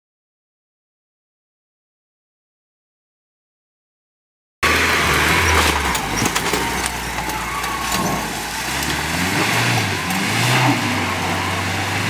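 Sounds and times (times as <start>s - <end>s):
engine revving: 4.6s - 12.0s
tyres in mud: 4.6s - 12.0s
scattered clicks: 4.7s - 9.0s.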